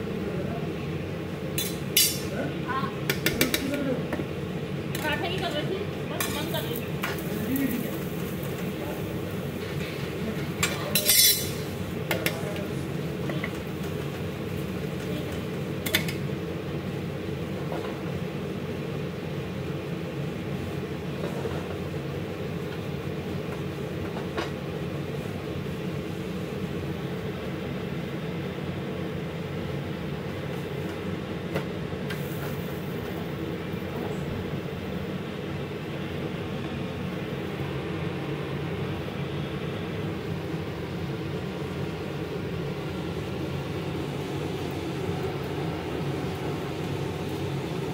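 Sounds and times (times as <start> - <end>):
low kitchen rumble: 0.0 - 47.9
spatula clattering: 10.6 - 11.6.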